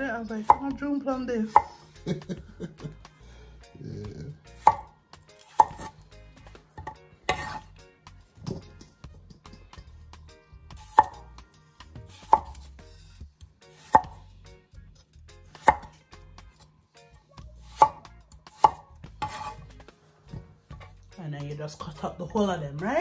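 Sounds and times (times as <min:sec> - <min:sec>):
knife cutting potatoes: 0:00.3 - 0:02.0, 0:04.5 - 0:07.8, 0:10.7 - 0:11.3, 0:11.9 - 0:16.7, 0:17.6 - 0:21.0.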